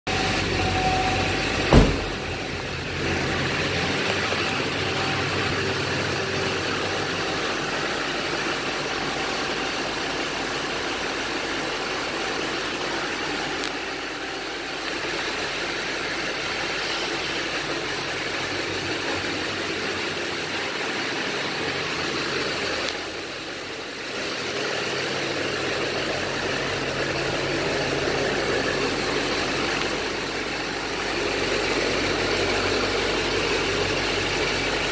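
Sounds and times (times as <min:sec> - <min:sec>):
pickup truck engine idling: 0:00.1 - 0:34.9
sharp knock: 0:01.7 - 0:02.2.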